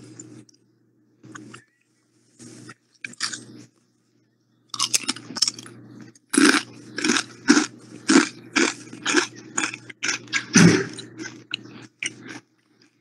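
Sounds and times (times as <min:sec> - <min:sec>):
potato chips crunching and chewing: 0:02.9 - 0:03.5, 0:04.7 - 0:13.0.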